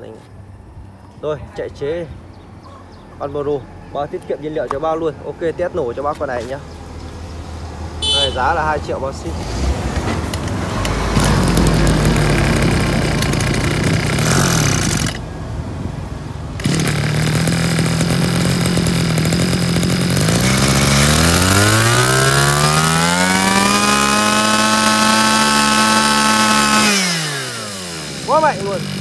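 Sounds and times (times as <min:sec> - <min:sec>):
brush cutter engine revving: 0:08.0 - 0:15.3, 0:16.5 - 0:29.0.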